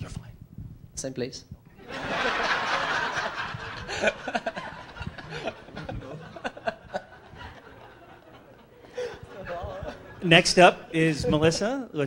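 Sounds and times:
audience laughing: 1.8s - 10.4s.

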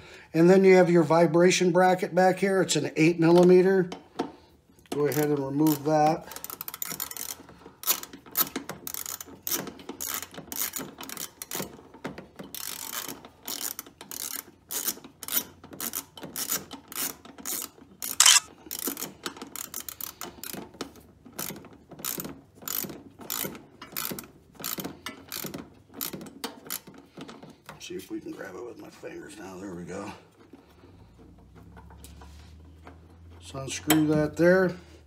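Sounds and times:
socket ratchet clicking: 18.2s - 18.5s.

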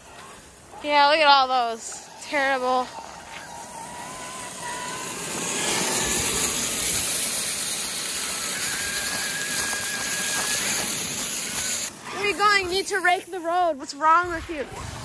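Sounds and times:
rake scraping over gravel: 0.0s - 14.6s
toy truck electric motor whining: 1.8s - 13.2s.

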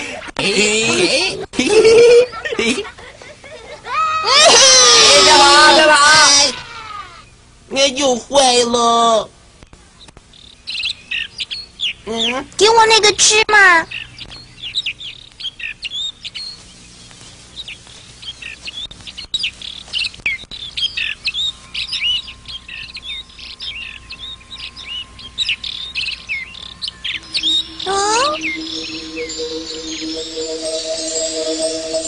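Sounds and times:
small birds chirping: 9.6s - 32.0s
steady music: 24.2s - 32.0s.

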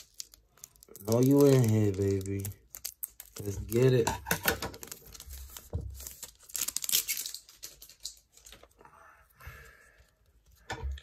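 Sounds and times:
foil wrapper crinkling: 0.0s - 8.7s
trading cards rustling: 0.0s - 8.8s.

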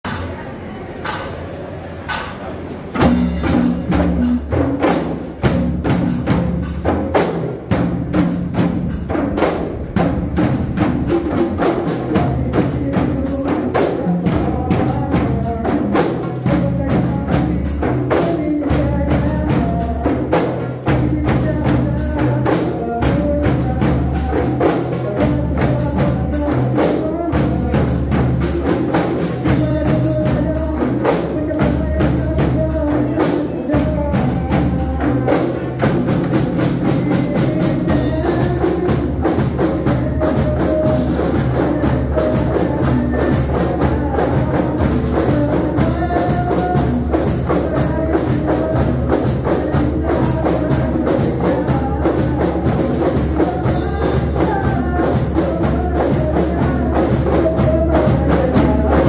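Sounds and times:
frame drums beaten fast: 2.1s - 59.0s
man singing through microphone: 9.7s - 59.0s.

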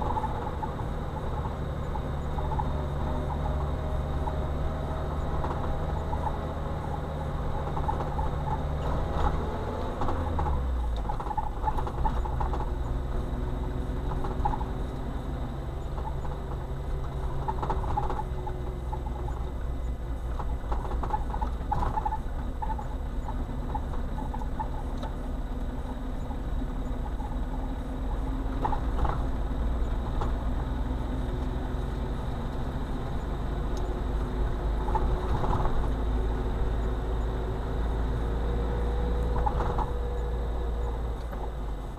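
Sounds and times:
car engine humming: 0.0s - 41.9s
tyre rumble on road: 0.0s - 41.9s.

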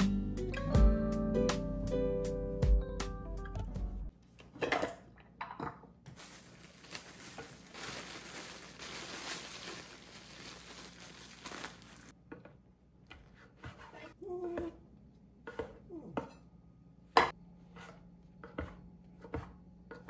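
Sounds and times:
plastic bag crinkling: 6.1s - 12.1s.

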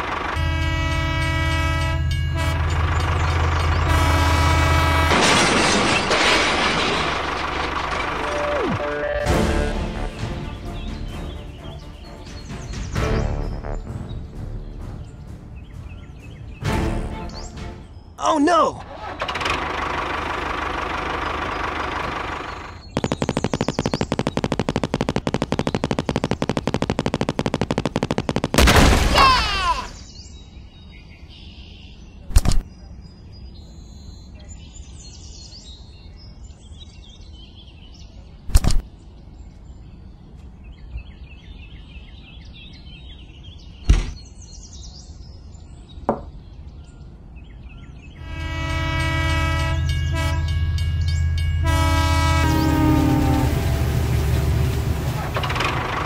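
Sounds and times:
multi-tone toy train horn: 0.4s - 5.1s, 48.2s - 50.8s, 51.5s - 54.0s
sharp clicks: 22.9s - 28.8s, 38.5s - 38.8s.

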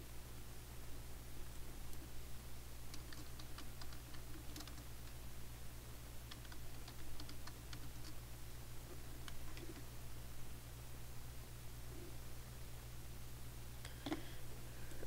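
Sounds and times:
low electrical hum: 0.0s - 15.0s
computer keyboard typing: 2.9s - 5.2s, 6.2s - 8.2s, 9.2s - 9.9s.

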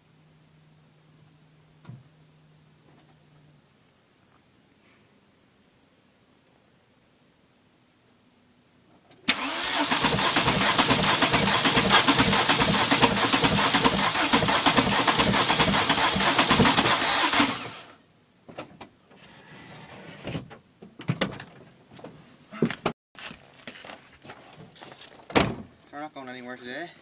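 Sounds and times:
engine cranking by starter: 9.3s - 18.0s.

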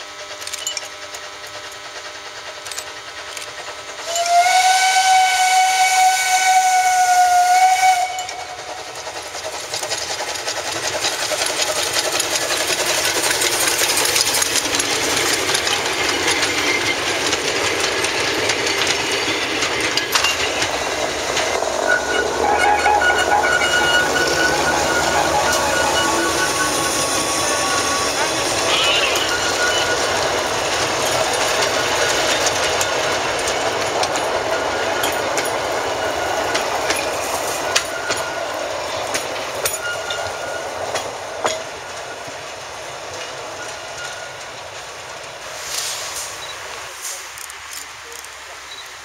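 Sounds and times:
steam train hissing and clattering: 0.0s - 49.0s
steam locomotive whistle: 4.0s - 8.8s, 21.7s - 30.4s.

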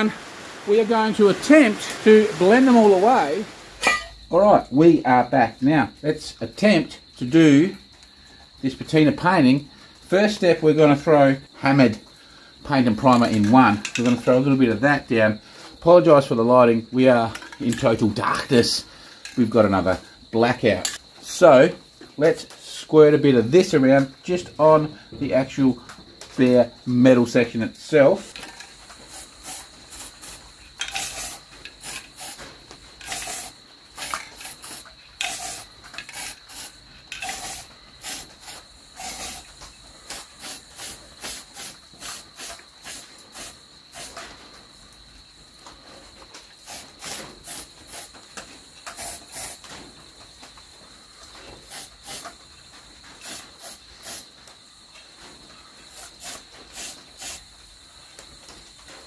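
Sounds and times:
spray can hissing: 29.0s - 44.2s, 46.6s - 48.2s, 48.8s - 49.7s, 51.6s - 52.4s, 53.2s - 54.3s, 55.9s - 57.5s.

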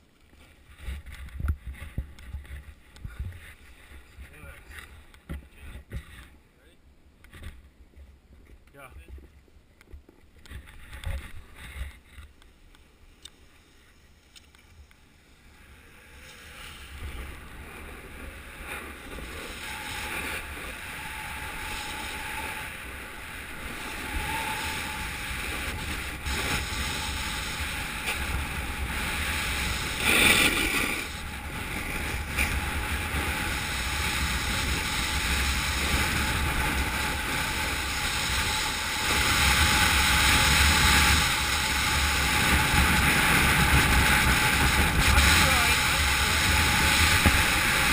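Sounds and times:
skis hissing on snow: 15.2s - 47.9s
wind rushing over microphone: 15.4s - 47.9s.

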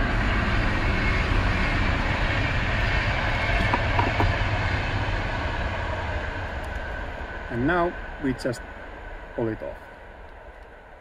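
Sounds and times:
rushing noise with low rumble: 0.0s - 11.0s.

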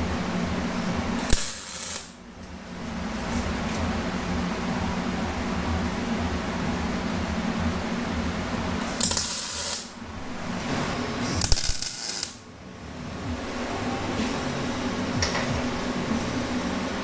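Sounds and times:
low hum: 0.0s - 17.0s
welder crackling and hissing: 0.6s - 2.2s, 8.8s - 12.5s.

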